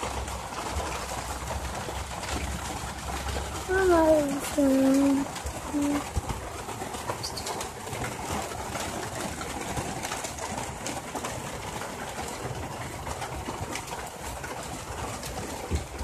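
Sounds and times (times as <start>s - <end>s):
heavy rain hissing: 0.0s - 8.2s
faint rain ticks: 0.0s - 16.0s.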